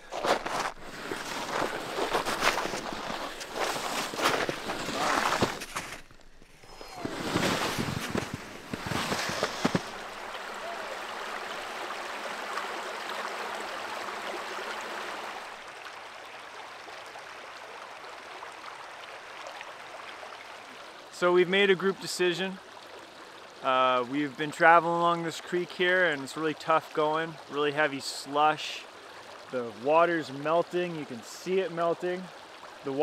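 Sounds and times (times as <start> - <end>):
footsteps in wet slush: 0.0 - 10.5
sled dragged through slush: 0.0 - 11.0
creek water running: 0.0 - 33.0.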